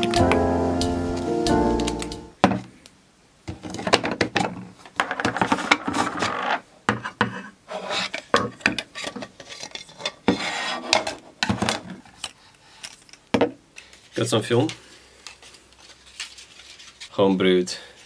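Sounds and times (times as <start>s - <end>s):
plastic rubbing and scraping: 3.6s - 12.3s.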